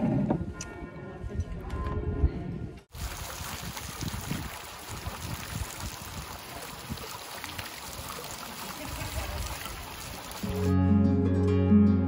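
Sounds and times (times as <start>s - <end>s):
fountain water splashing into basin: 2.9s - 10.7s.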